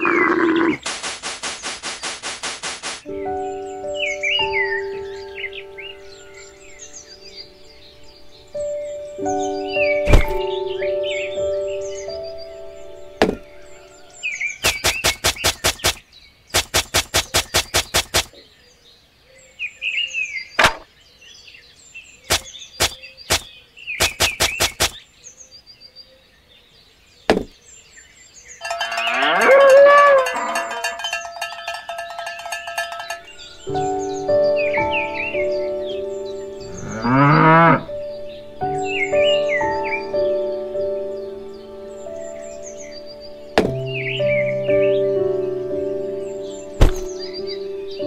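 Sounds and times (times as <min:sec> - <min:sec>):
cow mooing: 0:00.0 - 0:00.8, 0:28.8 - 0:31.0, 0:36.7 - 0:37.9
rapid clicks: 0:00.8 - 0:03.1, 0:14.6 - 0:16.0, 0:16.6 - 0:18.4, 0:22.3 - 0:25.0.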